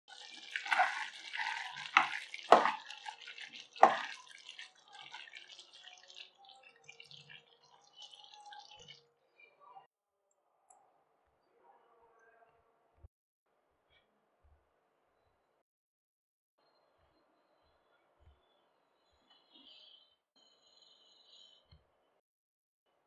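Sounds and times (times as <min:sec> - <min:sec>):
spatula stirring thick gravy: 0:00.1 - 0:08.9.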